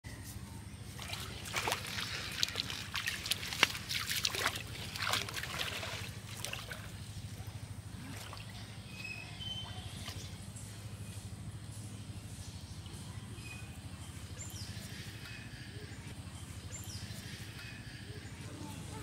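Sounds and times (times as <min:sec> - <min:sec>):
steady low hum: 0:00.1 - 0:19.0
water splashing from wading: 0:00.9 - 0:10.4.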